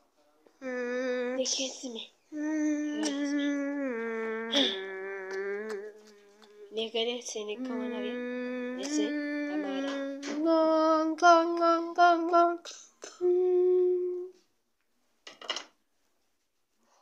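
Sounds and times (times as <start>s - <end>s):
high voice singing held notes: 2.3s - 6.8s, 7.6s - 14.4s.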